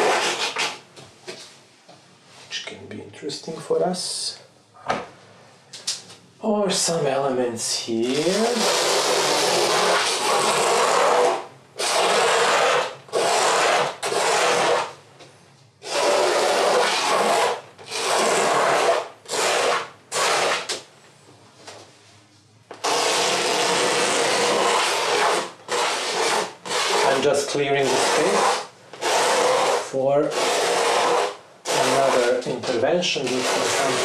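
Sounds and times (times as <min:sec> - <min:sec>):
razor blade scraping canvas: 0:00.0 - 0:00.8, 0:08.0 - 0:14.9, 0:15.8 - 0:20.8, 0:22.8 - 0:34.0.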